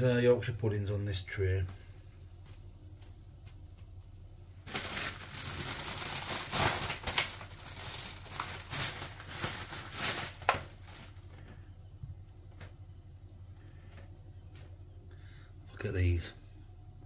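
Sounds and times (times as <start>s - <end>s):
plastic bag crinkling: 4.6s - 11.5s.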